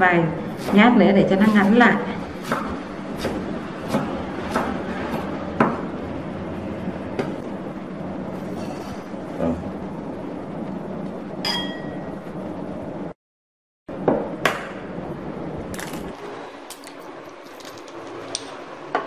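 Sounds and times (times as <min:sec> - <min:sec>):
knife chopping on wooden board: 0:00.5 - 0:05.9
ceramic bowl clinking: 0:11.5 - 0:12.1.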